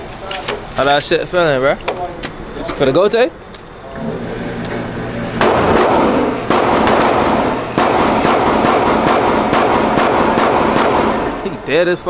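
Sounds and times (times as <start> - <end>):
rapid gunshots with echo: 5.4 - 11.4.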